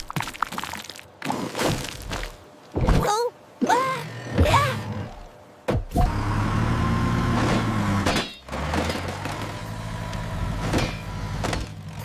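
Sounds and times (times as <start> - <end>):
cartoon bulldozer engine rumble: 4.0 - 12.0.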